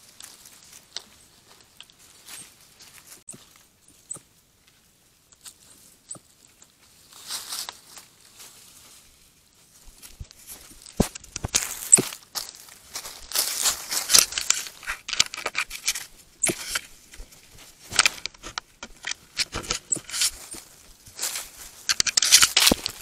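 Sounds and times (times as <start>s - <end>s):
rustling: 0.0s - 23.0s
scratches and clicks on camera: 14.1s - 16.9s, 17.9s - 20.5s, 21.9s - 23.0s.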